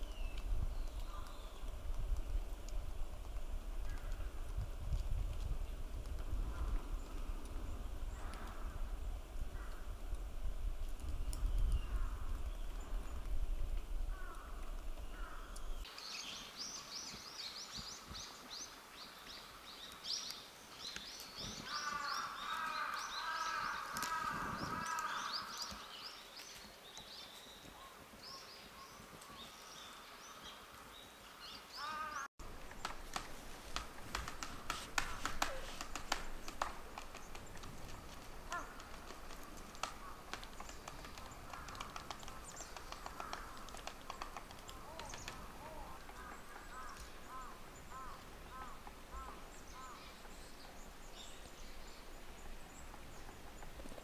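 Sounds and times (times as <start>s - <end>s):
birds chirping: 0.0s - 1.8s, 14.1s - 54.0s
sharp clicks and taps: 32.7s - 45.4s.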